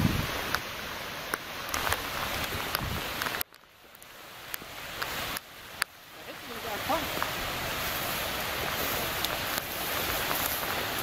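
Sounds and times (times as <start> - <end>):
rain falling on pond: 0.0 - 11.0
sharp drip ticks: 1.3 - 6.0.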